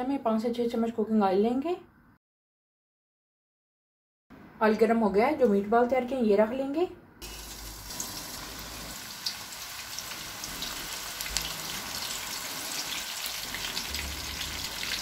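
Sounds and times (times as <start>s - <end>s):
meatballs sizzling in oil: 7.2s - 15.0s
oil crackling and popping: 7.2s - 15.0s.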